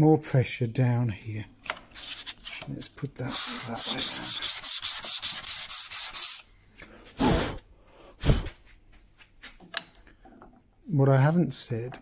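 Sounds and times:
wood rasping on abrasive sheet: 3.2 - 6.4.

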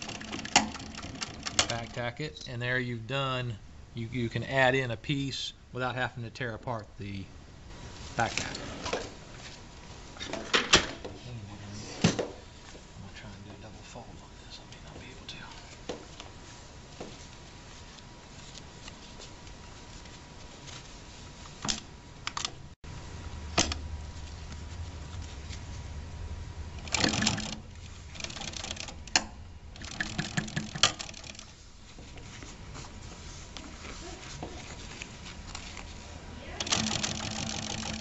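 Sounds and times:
sewing machine stitching: 0.0 - 1.9, 26.8 - 29.0, 29.8 - 31.5, 36.6 - 38.0.

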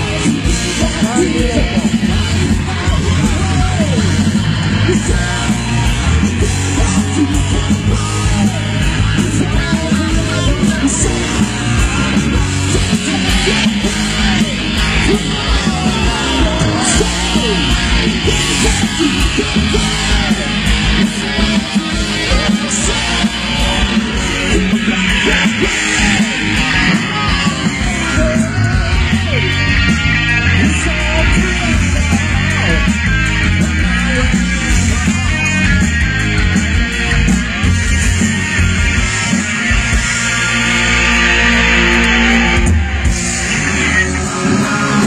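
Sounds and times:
person singing: 0.0 - 33.1, 43.4 - 45.0
live rock band playing: 0.0 - 45.0.

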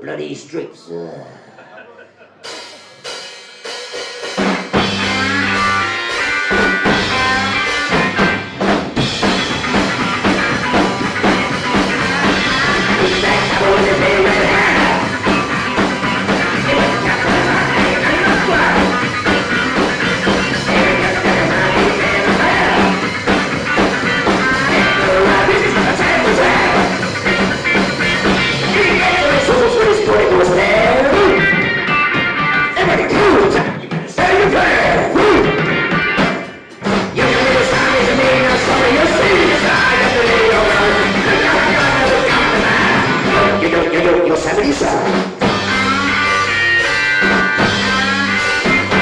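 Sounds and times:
electric guitars and bass: 1.4 - 49.0
drum kit: 2.0 - 49.0
man singing into microphone: 12.6 - 15.2, 16.6 - 19.0, 20.7 - 23.0, 24.7 - 27.0, 28.7 - 31.5, 32.8 - 35.6, 37.2 - 45.2.

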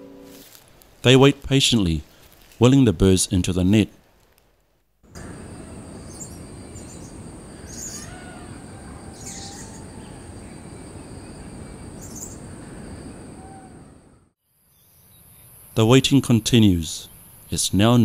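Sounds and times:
background hiss: 0.0 - 18.0
lorikeets high-pitched calls: 5.3 - 10.8, 11.9 - 13.8.

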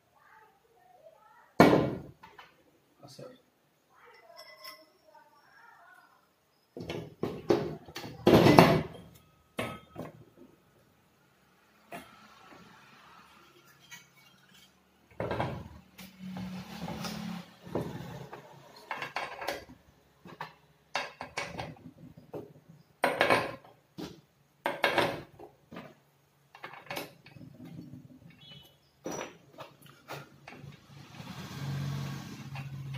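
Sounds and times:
metal scraping: 11.8 - 19.3
metal parts clattering on wood: 24.7 - 30.6.

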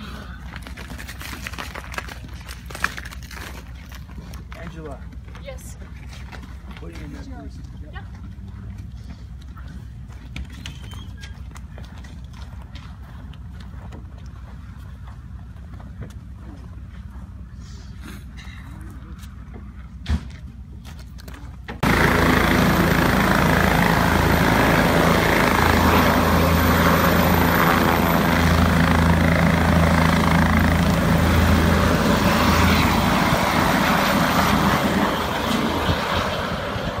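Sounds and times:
helicopter rotor and engine noise: 21.7 - 37.0.

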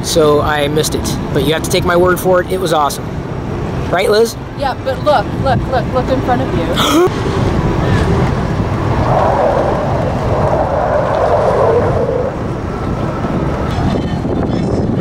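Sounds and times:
distant jets roaring past: 2.9 - 15.0
wind buffeting microphone: 4.4 - 15.0.

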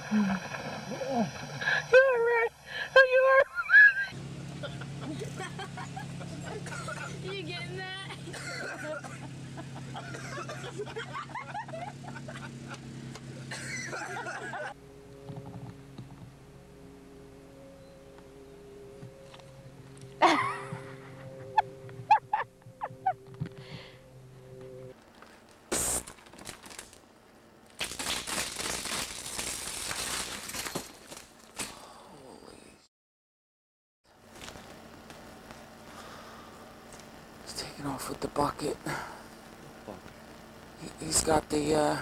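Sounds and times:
faint steady tones: 0.0 - 25.7
steady low hum: 0.0 - 32.8, 34.1 - 42.0
people laughing: 3.1 - 12.8, 13.4 - 14.8, 20.2 - 23.2
nylon tent fabric crinkling: 25.0 - 27.0, 27.7 - 31.6.

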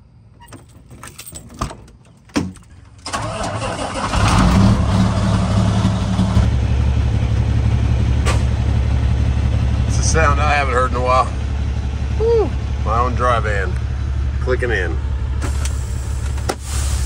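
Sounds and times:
diesel engine starting and idling: 0.0 - 17.0.

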